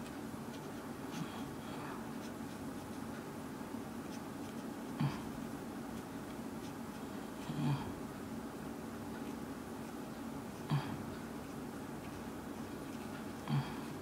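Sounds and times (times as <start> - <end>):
marker scratching on paper: 0.5 - 3.3, 4.0 - 5.0, 5.9 - 7.2.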